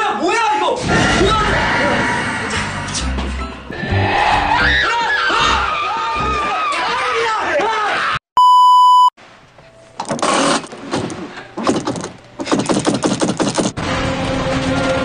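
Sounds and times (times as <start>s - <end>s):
music: 0.8s - 6.8s, 9.6s - 15.0s
test-tone beep: 8.4s - 9.1s.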